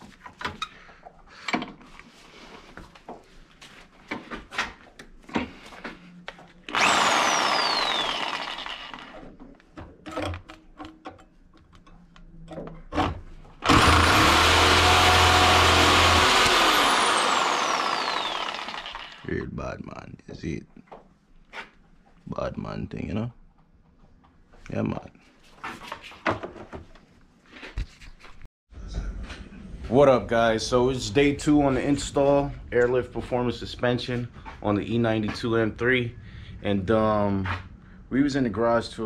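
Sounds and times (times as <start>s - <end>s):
power tool cutting steel bolt: 6.7s - 9.4s, 13.6s - 19.3s
light metal clanks and knocks: 9.7s - 13.1s.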